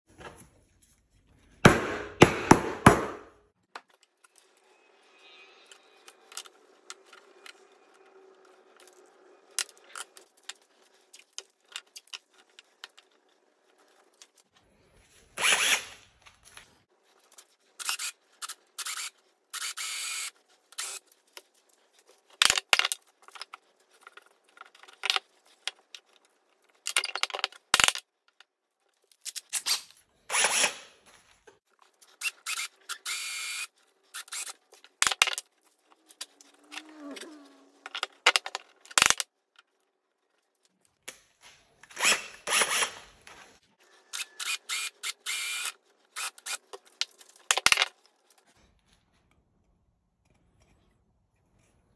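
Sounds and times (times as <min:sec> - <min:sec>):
cordless drill boring wood: 0:18.8 - 0:21.0, 0:32.2 - 0:34.5, 0:44.1 - 0:46.6.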